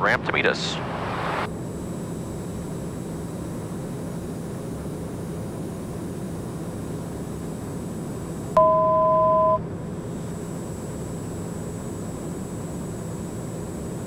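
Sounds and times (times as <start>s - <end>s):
turboprop engine cabin drone: 0.0s - 14.0s
two-pitch electronic tone: 8.6s - 9.6s.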